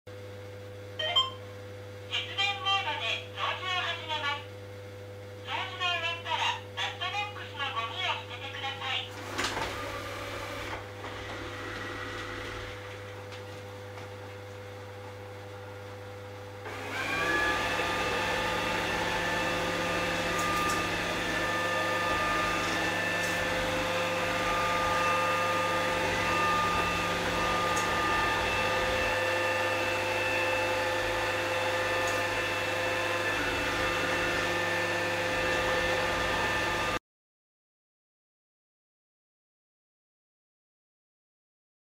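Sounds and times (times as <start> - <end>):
robot vacuum cleaner running: 8.6 - 13.2, 16.6 - 37.0.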